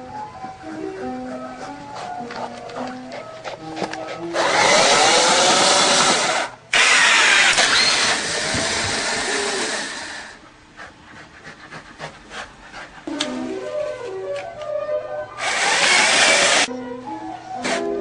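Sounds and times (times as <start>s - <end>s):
electric motor whirring: 4.4s - 10.4s, 15.4s - 16.7s.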